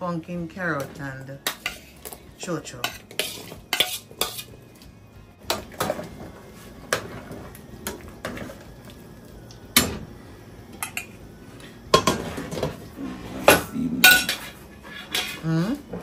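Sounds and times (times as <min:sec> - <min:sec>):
pots and utensils clinking: 0:00.7 - 0:04.5, 0:05.5 - 0:06.2, 0:10.7 - 0:11.2, 0:11.9 - 0:12.8, 0:13.4 - 0:16.0.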